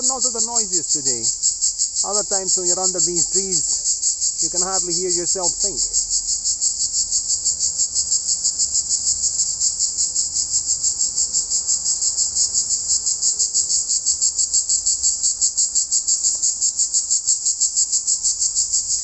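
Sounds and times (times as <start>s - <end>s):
cicadas buzzing: 0.0s - 19.0s.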